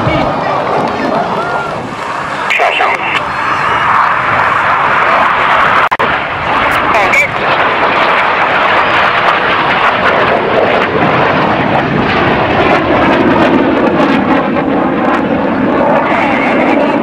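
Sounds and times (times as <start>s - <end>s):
jet passing low roar: 0.0s - 17.0s.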